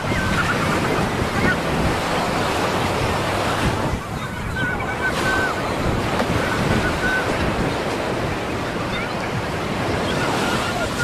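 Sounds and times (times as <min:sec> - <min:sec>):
ocean surf washing onto beach: 0:00.0 - 0:11.0
wind on microphone: 0:00.0 - 0:11.0.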